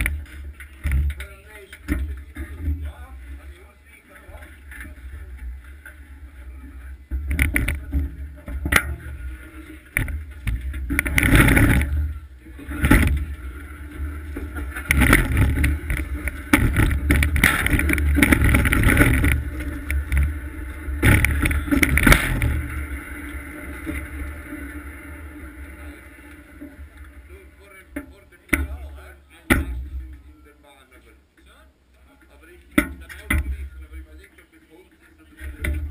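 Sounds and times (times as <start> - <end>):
sled runners grinding over ice: 0.0 - 27.8.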